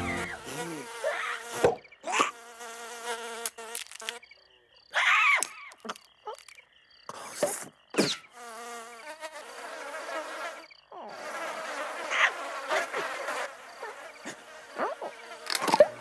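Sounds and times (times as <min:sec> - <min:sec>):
cartoon insect buzzing: 0:00.0 - 0:04.2, 0:08.0 - 0:16.0.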